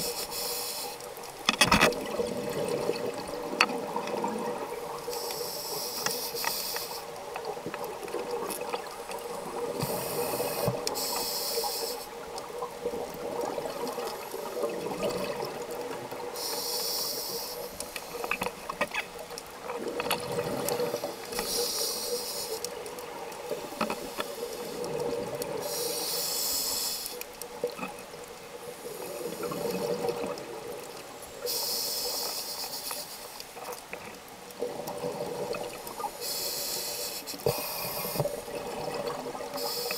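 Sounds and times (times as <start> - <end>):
regulator hissing inhalation: 0.0 - 1.0, 5.1 - 7.2, 9.8 - 12.2, 16.4 - 18.3, 20.8 - 22.6, 25.6 - 27.2, 31.4 - 33.4, 36.0 - 38.4, 39.6 - 39.9.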